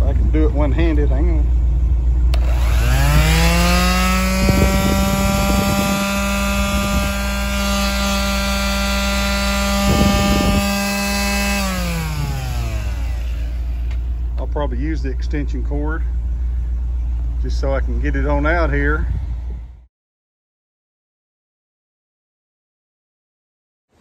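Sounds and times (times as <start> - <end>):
truck engine idling: 0.0 - 4.0, 11.1 - 19.7
palm sander motor whine: 1.8 - 18.5
sander switch click: 2.3 - 3.0, 13.8 - 14.5.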